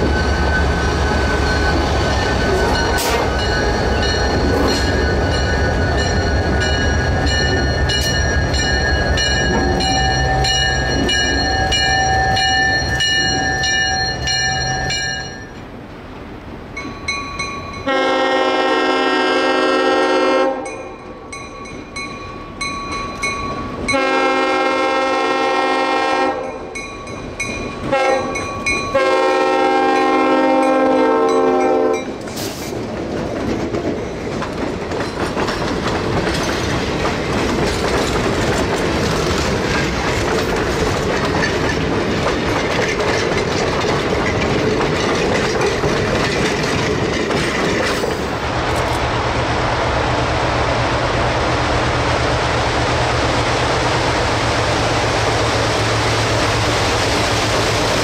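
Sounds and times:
locomotive air horn blasts: 0:17.8 - 0:20.7, 0:23.9 - 0:26.5, 0:27.9 - 0:32.1.

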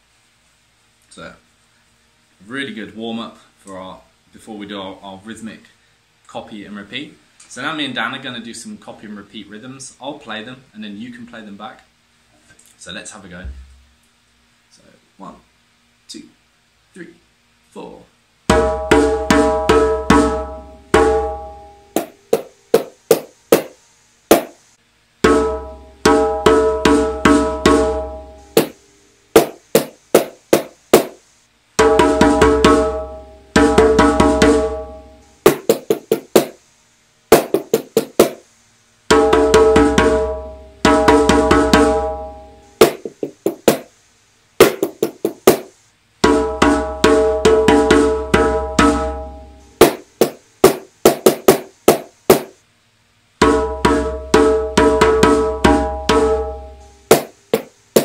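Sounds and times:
pitched drum strokes: 0:25.2 - 0:28.8, 0:31.8 - 0:36.6, 0:37.3 - 0:38.4, 0:39.1 - 0:43.9, 0:44.6 - 0:52.5, 0:53.4 - 0:58.0.

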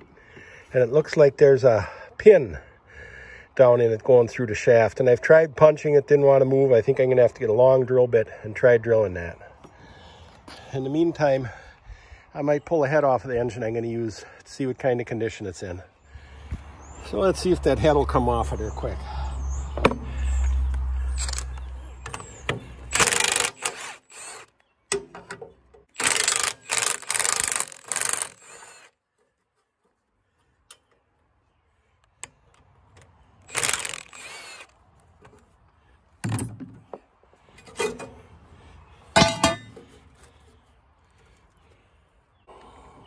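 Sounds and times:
cordless power driver whirring: 0:21.1 - 0:24.5, 0:26.0 - 0:28.9, 0:33.4 - 0:34.7.

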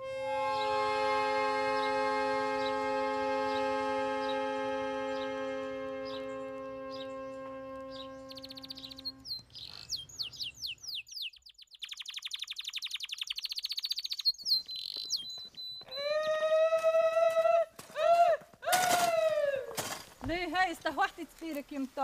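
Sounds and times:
small birds chirping and trilling: 0:06.0 - 0:16.4.

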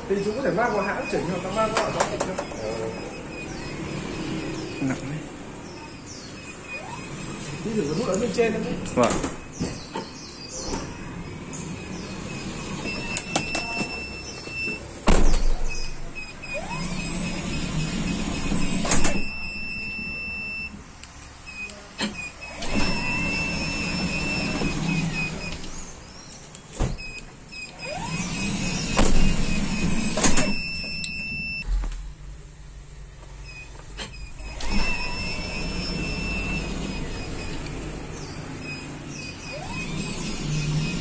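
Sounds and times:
door motor whirring: 0:00.1 - 0:20.5, 0:21.5 - 0:25.9, 0:26.8 - 0:31.8, 0:33.5 - 0:41.0
electronic beep: 0:00.3 - 0:08.2, 0:11.8 - 0:14.8, 0:33.5 - 0:37.6, 0:38.2 - 0:41.0.

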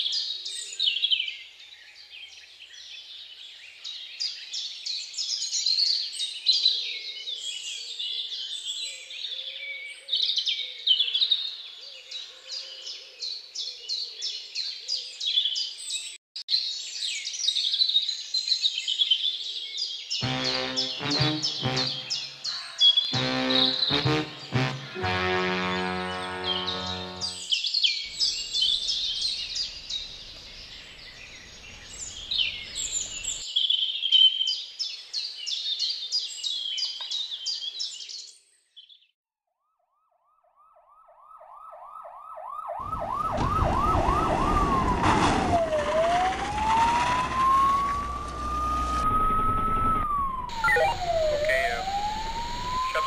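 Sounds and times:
birds chirping: 0:20.1 - 0:33.4, 0:45.6 - 0:53.0
police siren yelping and wailing: 0:40.8 - 0:53.0.

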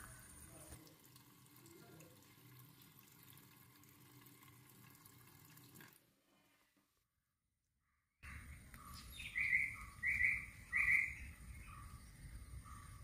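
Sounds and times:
tap water running into steel sink: 0:00.7 - 0:06.0.

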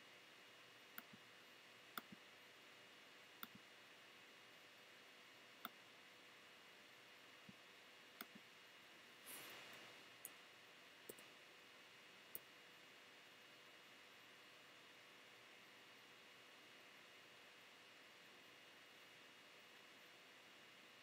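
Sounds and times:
faint clicks: 0:03.4 - 0:03.6.

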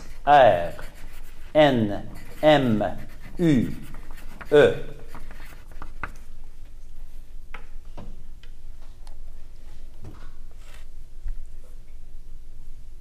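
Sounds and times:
pencils tapping and writing on paper: 0:00.0 - 0:06.8.

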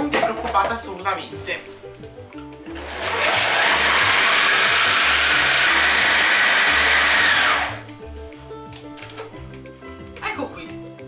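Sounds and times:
food processor grinding nuts: 0:02.7 - 0:07.8.

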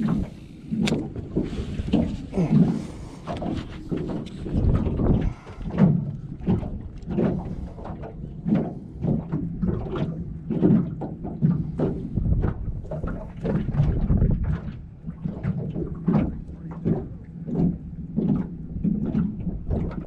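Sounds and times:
wind on microphone: 0:00.0 - 0:10.2, 0:10.8 - 0:15.9
waves slapping boat hull: 0:00.0 - 0:20.0.

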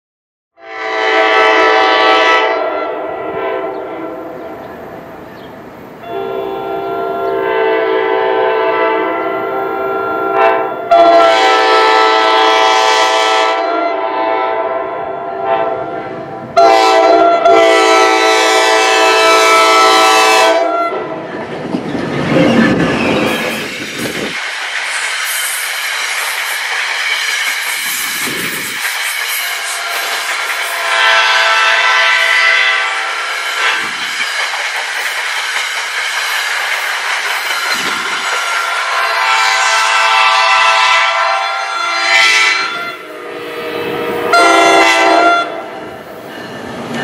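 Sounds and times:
train air horn blasts: 0:00.6 - 0:04.4, 0:06.0 - 0:21.2, 0:29.3 - 0:34.2, 0:37.8 - 0:46.0
train wheels clattering on rails: 0:21.0 - 0:32.4, 0:33.1 - 0:40.2, 0:43.2 - 0:47.0.

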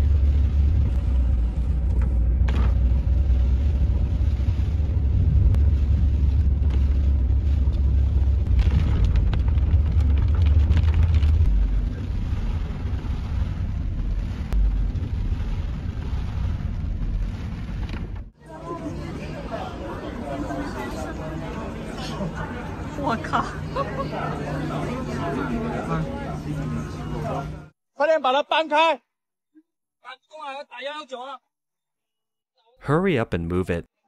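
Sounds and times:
deep wind rumble inside car: 0:00.0 - 0:18.4
rain hissing on windscreen: 0:03.1 - 0:18.0.

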